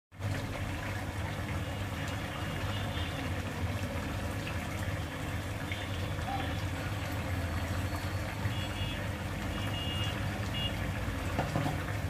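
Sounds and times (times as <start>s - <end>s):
curry bubbling in a pan: 0.1s - 12.0s.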